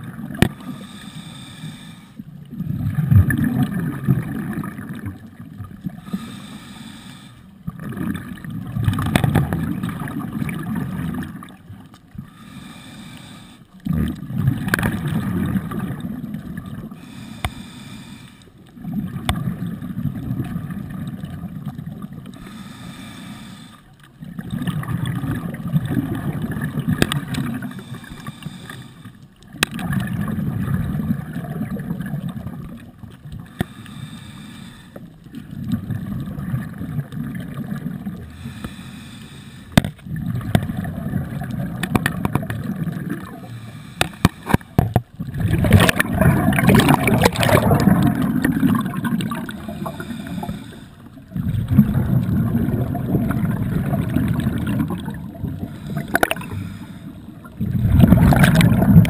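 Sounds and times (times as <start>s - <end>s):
regulator inhalations: 0.6s - 2.2s, 6.0s - 7.5s, 12.2s - 13.7s, 17.0s - 18.6s, 22.4s - 23.9s, 27.6s - 29.2s, 33.5s - 35.1s, 38.3s - 39.8s, 43.4s - 44.8s, 49.5s - 51.2s, 55.6s - 57.4s
bubbly exhalations underwater: 2.4s - 6.1s, 7.6s - 11.9s, 13.8s - 17.0s, 18.8s - 22.3s, 24.2s - 27.9s, 29.5s - 33.6s, 35.3s - 38.4s, 39.8s - 43.6s, 44.2s - 50.6s, 51.2s - 59.0s.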